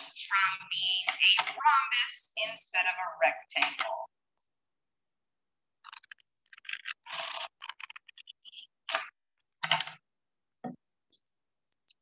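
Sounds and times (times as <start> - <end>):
cardstock rustling and scraping: 5.9 - 9.1.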